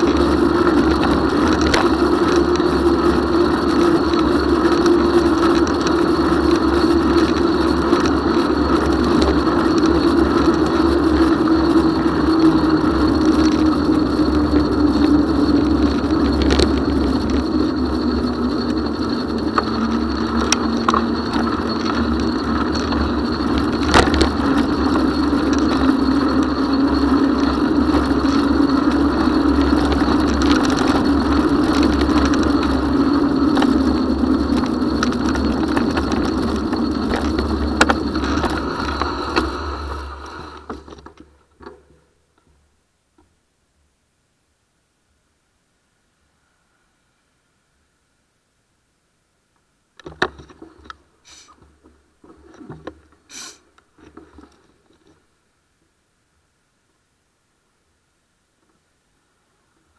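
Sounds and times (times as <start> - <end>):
wind noise: 0.0 - 41.0
bicycle tyres rolling: 0.0 - 43.4, 50.0 - 55.5
hum: 0.0 - 49.9.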